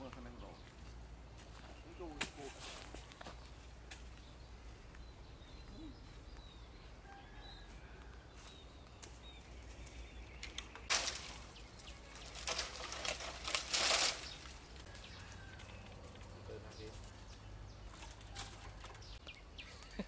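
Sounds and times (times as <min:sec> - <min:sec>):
faint bird chirps: 0:01.5 - 0:12.7
dry leaves rustling and crackling: 0:08.3 - 0:20.0.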